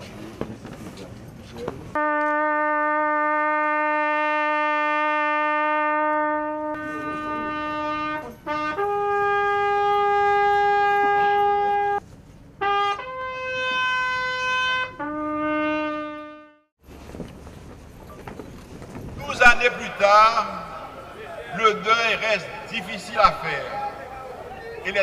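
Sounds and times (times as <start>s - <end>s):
solo trumpet long notes: 2.0s - 12.0s, 12.6s - 16.7s.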